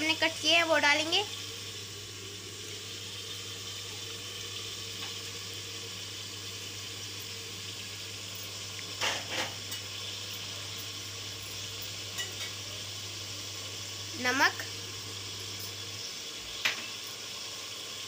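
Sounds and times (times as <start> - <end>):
meat sizzling in a pot: 0.0 - 18.0.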